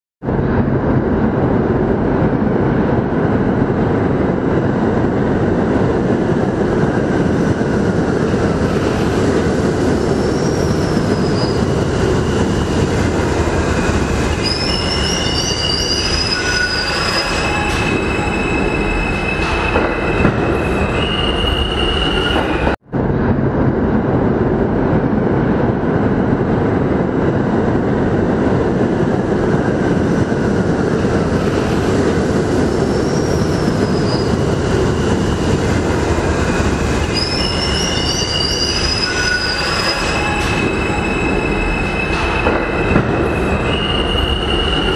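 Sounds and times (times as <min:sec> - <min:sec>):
train wheels rumbling on rail: 0:00.2 - 0:44.9
high wheel squeals: 0:10.0 - 0:11.8, 0:14.4 - 0:22.8, 0:32.7 - 0:35.2, 0:37.1 - 0:44.9.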